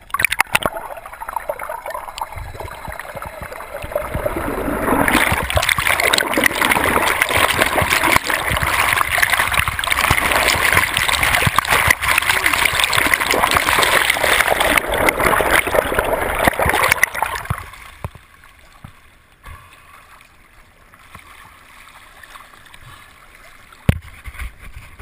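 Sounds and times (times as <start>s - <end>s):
wash of water: 0.0s - 17.8s
churning water and bubbles: 0.0s - 24.1s.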